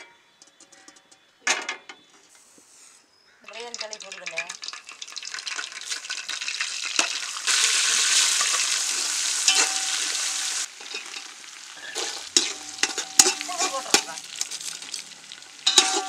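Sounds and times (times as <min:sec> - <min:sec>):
spices sizzling in hot oil: 0:03.4 - 0:16.0
spatula scraping a metal pot: 0:08.8 - 0:14.9, 0:15.7 - 0:16.0.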